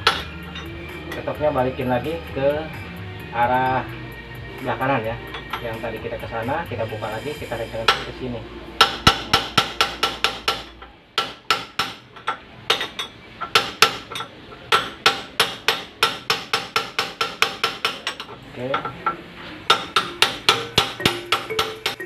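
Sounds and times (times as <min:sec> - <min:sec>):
metal rod striking steel nut: 0:00.0 - 0:01.3, 0:08.8 - 0:22.0.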